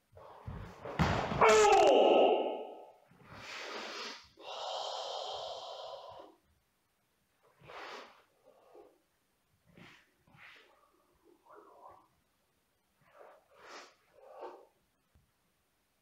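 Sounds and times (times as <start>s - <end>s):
man shouting: 1.4s - 2.9s
man breathing heavily: 4.4s - 6.3s.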